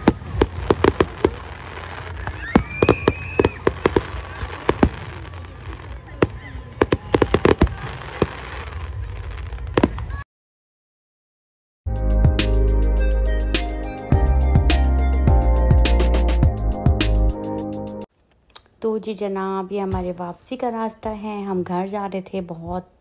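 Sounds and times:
fireworks bursting and crackling: 0.0s - 10.2s.

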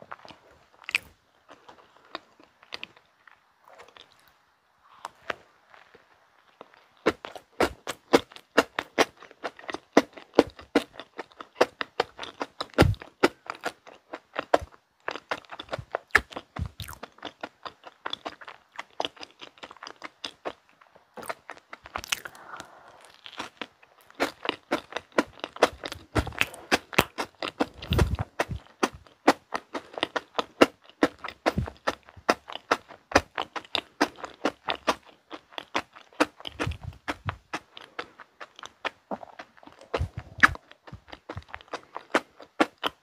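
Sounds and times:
biting into bun: 6.6s - 43.0s
chewing mouth sounds: 6.6s - 43.0s.

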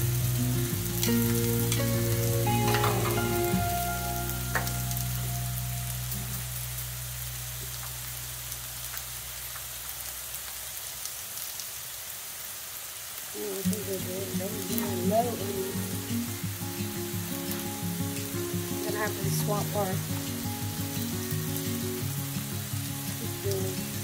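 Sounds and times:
background music: 0.0s - 7.7s, 13.4s - 24.0s
meat sizzling on a griddle: 0.0s - 24.0s.

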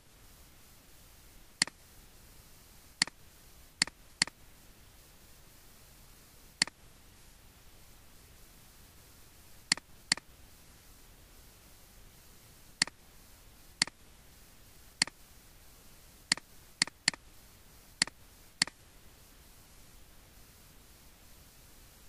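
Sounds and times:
faint steady hiss: 0.0s - 22.0s
computer mouse button clicks: 9.7s - 10.2s, 16.3s - 17.2s.

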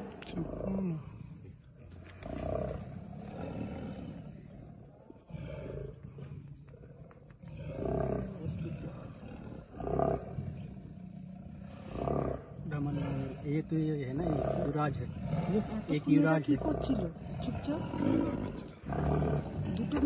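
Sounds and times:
tigers roaring: 0.0s - 20.0s.

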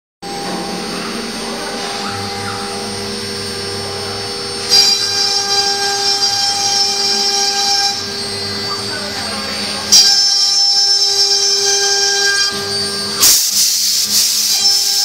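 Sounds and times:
cnc router whining: 0.2s - 15.0s
cutting hiss: 12.2s - 15.0s.

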